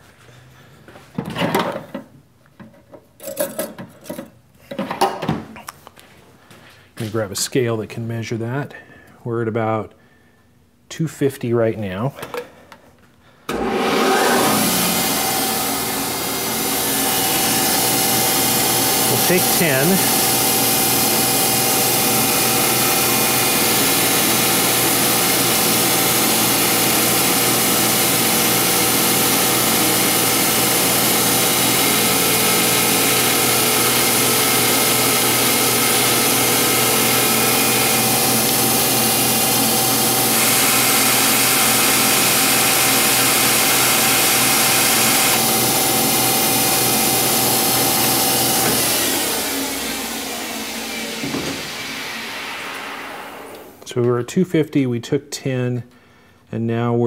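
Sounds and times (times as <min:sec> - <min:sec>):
lathe machine whine: 0:13.5 - 0:53.8
metal cutting noise: 0:13.5 - 0:53.8.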